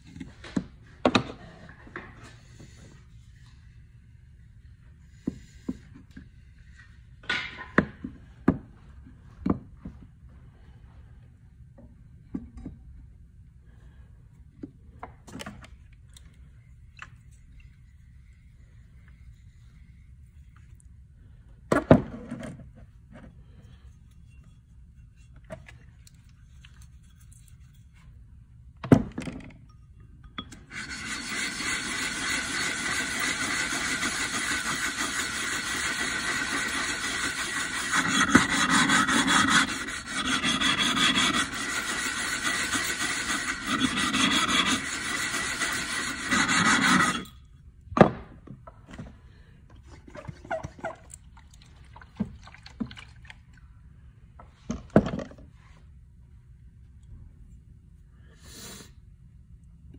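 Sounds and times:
plate scraping on sharpening stone: 0:30.7 - 0:47.4.

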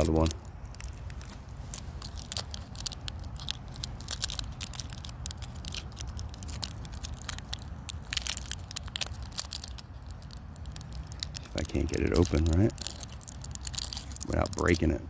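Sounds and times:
fingers crinkling foil packaging: 0:00.0 - 0:15.0.

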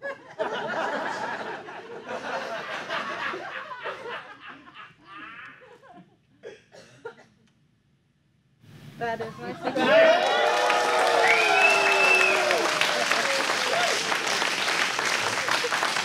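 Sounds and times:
audience laughing: 0:00.0 - 0:05.9, 0:09.4 - 0:10.6, 0:12.0 - 0:16.0.

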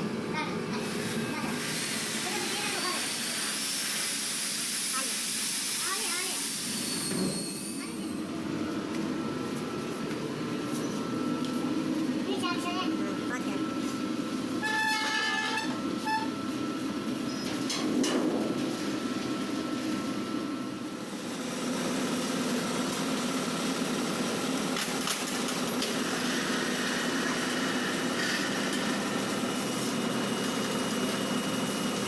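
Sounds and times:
machinery hum: 0:00.0 - 0:32.0
short squeaks: 0:06.8 - 0:08.1, 0:14.6 - 0:16.4.

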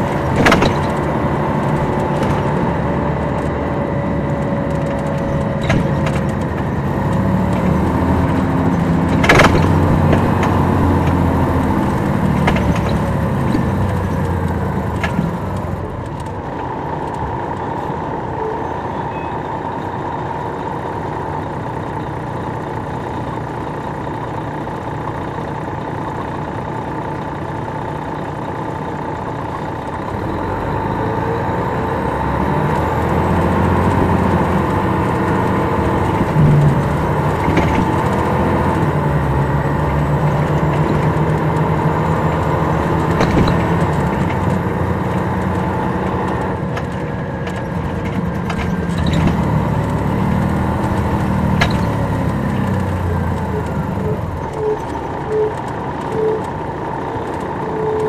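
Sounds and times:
sharp rattles and clicks: 0:00.0 - 0:17.7, 0:32.7 - 0:58.0
diesel coach engine running: 0:00.0 - 0:58.0.

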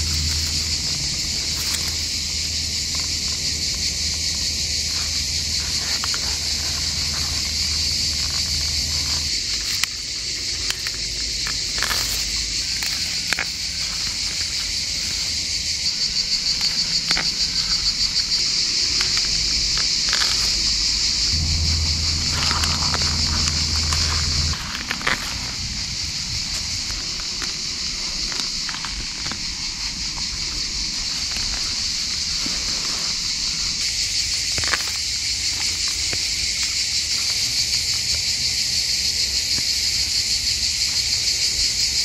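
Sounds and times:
dry straw snapping and crackling: 0:00.0 - 0:29.5
insects singing: 0:00.0 - 0:42.0.

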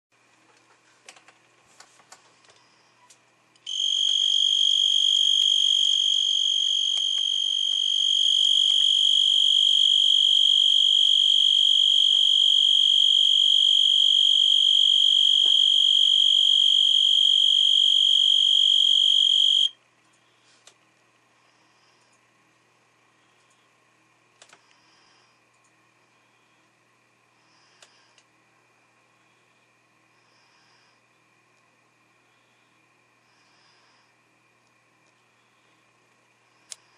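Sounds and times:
cricket high-pitched trill: 0:03.7 - 0:19.8.

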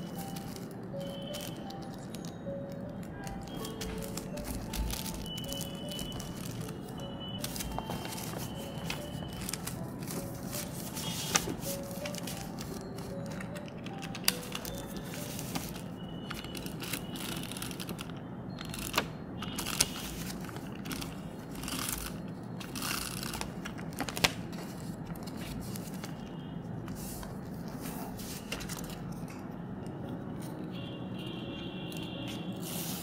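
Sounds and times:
paper rustling and crinkling: 0:00.0 - 0:29.4, 0:32.3 - 0:33.0
roller scraping along paper: 0:03.3 - 0:13.5, 0:14.2 - 0:26.2, 0:26.9 - 0:29.2, 0:32.3 - 0:33.0.

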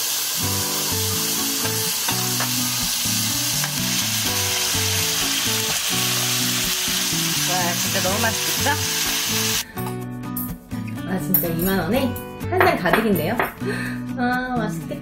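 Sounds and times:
meat sizzling in a pan: 0:00.0 - 0:09.6.

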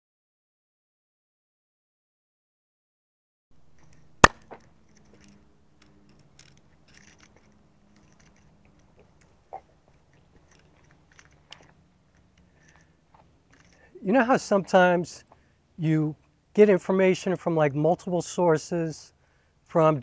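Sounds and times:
small rustles: 0:03.7 - 0:14.0.

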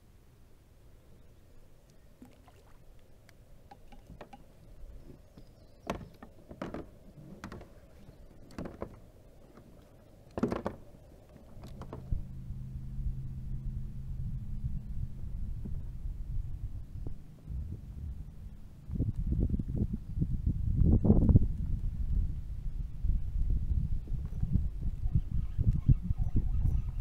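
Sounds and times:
steady low hum: 0:06.4 - 0:27.0
gear knocking on plastic hull: 0:10.4 - 0:10.8.

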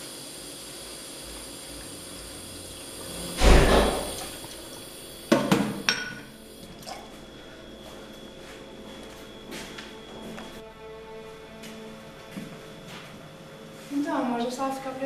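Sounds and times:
water splashing in sink: 0:01.7 - 0:06.0
dishes clinking: 0:05.3 - 0:06.3.

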